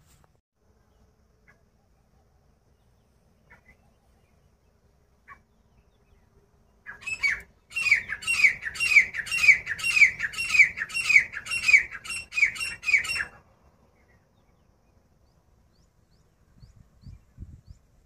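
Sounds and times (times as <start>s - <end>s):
francolin calling: 5.2s - 16.7s.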